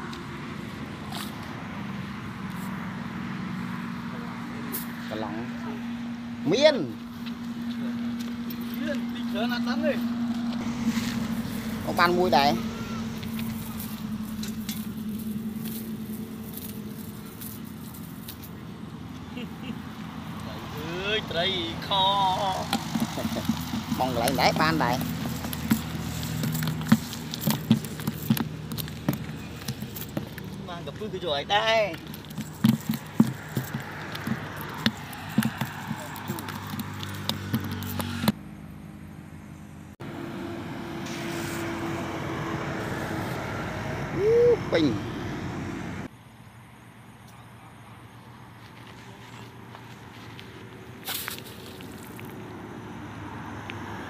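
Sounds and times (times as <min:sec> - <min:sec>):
low engine hum: 0:00.0 - 0:54.0
cast net swish: 0:51.0 - 0:52.1.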